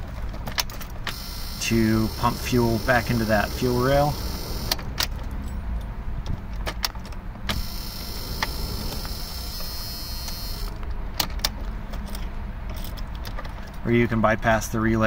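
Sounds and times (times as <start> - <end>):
fuel pump whine: 1.0 - 5.6, 7.4 - 11.1.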